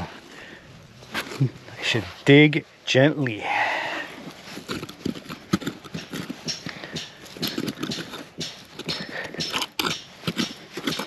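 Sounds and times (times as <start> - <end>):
hand rake scraping stony soil: 1.0 - 2.4, 3.3 - 11.0
tines clicking on stones: 4.1 - 11.0.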